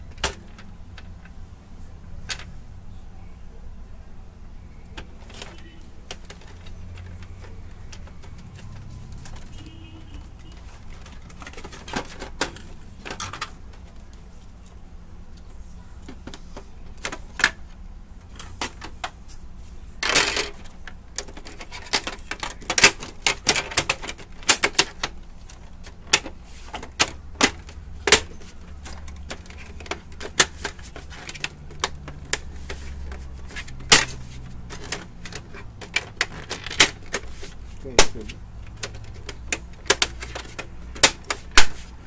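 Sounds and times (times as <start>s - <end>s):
plastic printer parts clicking: 0.0s - 1.4s, 4.8s - 19.2s, 20.0s - 42.0s
scraping rustle: 18.3s - 42.0s.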